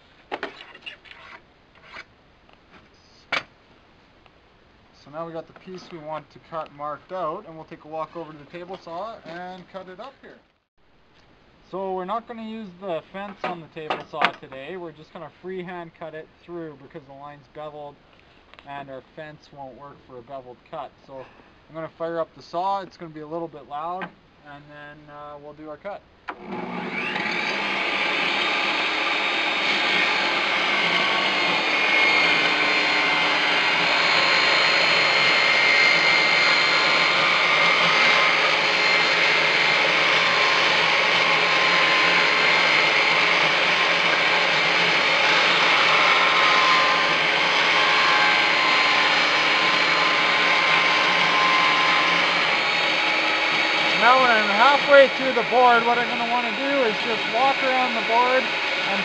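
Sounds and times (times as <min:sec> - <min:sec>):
table saw cutting wood: 0:26.3 - 0:59.0.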